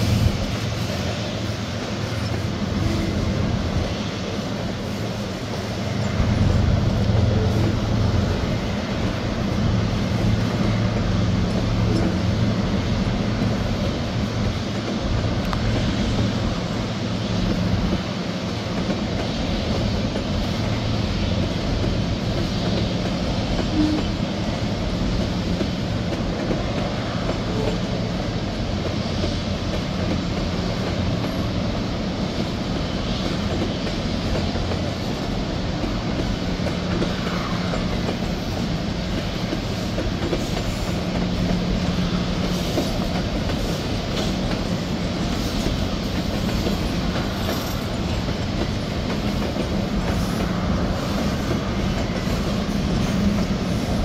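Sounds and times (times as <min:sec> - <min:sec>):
train wheels rumbling on rails: 0:00.0 - 0:54.0.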